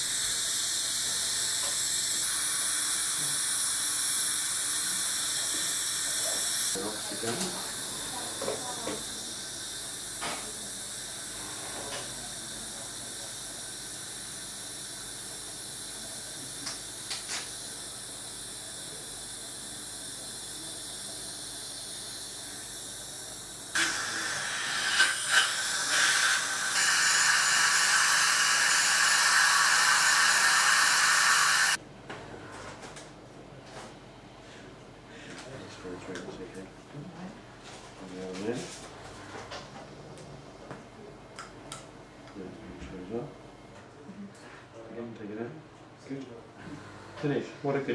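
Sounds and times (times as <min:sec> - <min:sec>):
dental suction hissing: 0:00.0 - 0:31.8
sharp hiss: 0:23.7 - 0:31.8.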